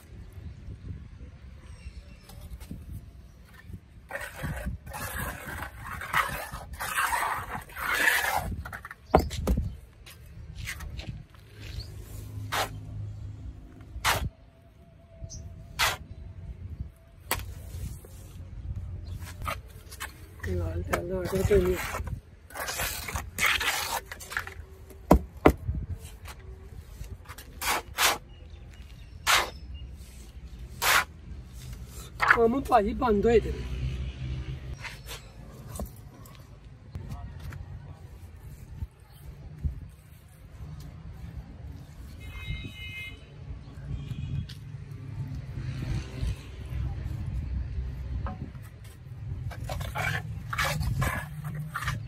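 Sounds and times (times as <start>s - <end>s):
trowel scraping wet concrete: 3.5s - 9.4s, 11.6s - 12.9s, 14.0s - 14.3s, 15.7s - 16.1s, 19.2s - 25.2s, 27.1s - 32.7s, 48.7s - 52.0s.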